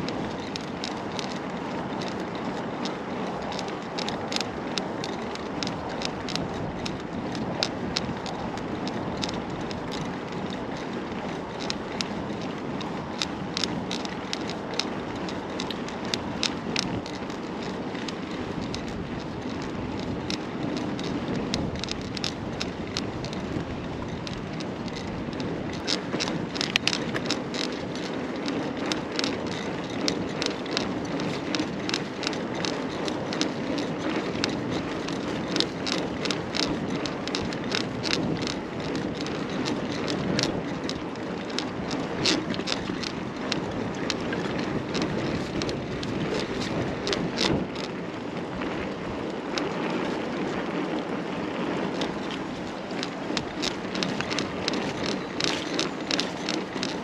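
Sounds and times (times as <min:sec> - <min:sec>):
bike clicks and rattles: 0:00.0 - 0:57.0
bike tyre noise: 0:00.0 - 0:57.0.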